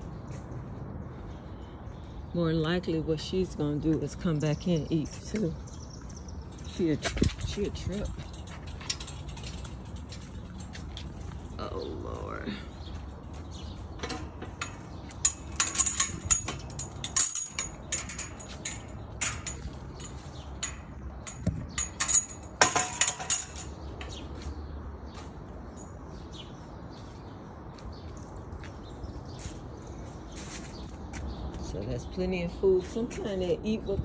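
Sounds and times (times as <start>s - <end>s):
sharp metal clicks and clinks: 6.4s - 11.4s, 14.0s - 24.3s.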